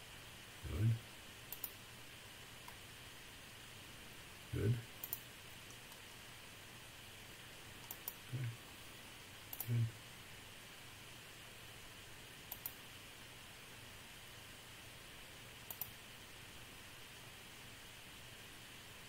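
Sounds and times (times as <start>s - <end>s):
faint steady hiss: 0.0s - 19.0s
computer mouse clicking: 1.5s - 1.8s, 5.0s - 6.0s, 7.8s - 8.2s, 9.5s - 9.8s, 12.5s - 12.8s, 15.6s - 16.0s.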